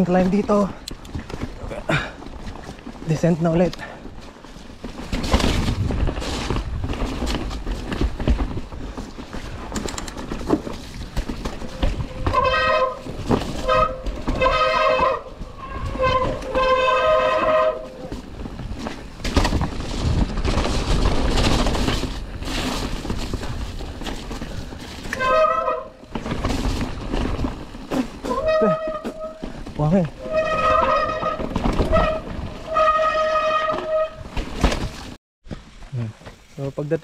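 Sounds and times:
tyre and trail rumble: 0.0 - 36.5
disc brakes squealing: 28.3 - 29.4.

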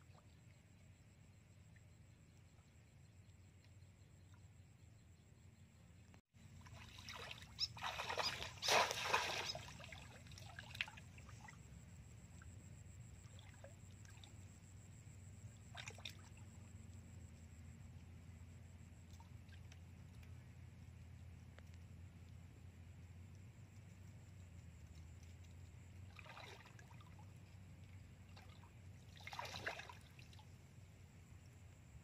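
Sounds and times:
muddy water splashing: 6.6 - 11.7, 15.5 - 16.7, 25.4 - 30.6.

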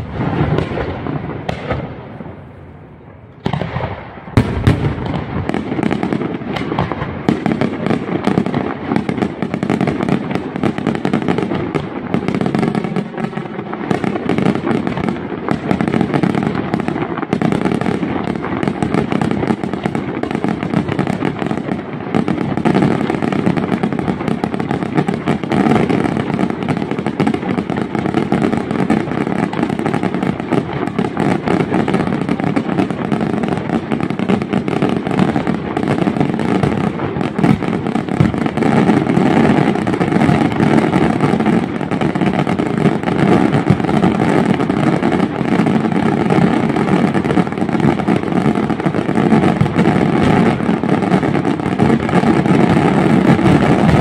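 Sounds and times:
fireworks crackling and banging: 0.0 - 54.0.

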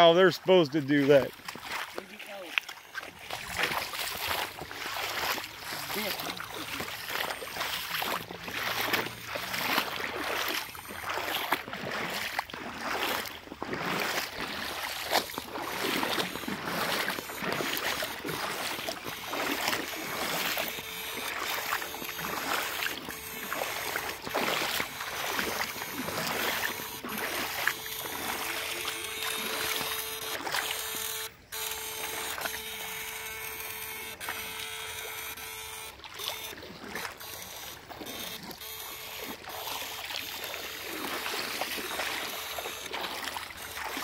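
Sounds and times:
water splashing as people wade: 0.0 - 44.0
steady electrical buzz: 15.7 - 44.0.

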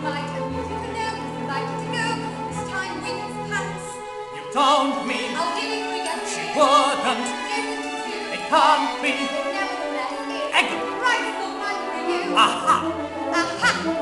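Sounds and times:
orchestra of strings and brass: 0.0 - 14.0
voices singing with vibrato: 3.2 - 14.0.

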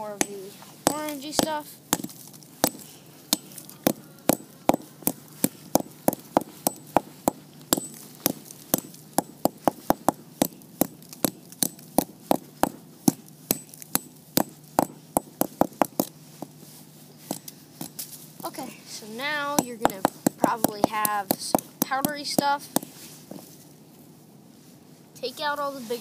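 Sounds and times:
hammer tapping brick on wood: 0.2 - 16.6, 19.6 - 22.9.

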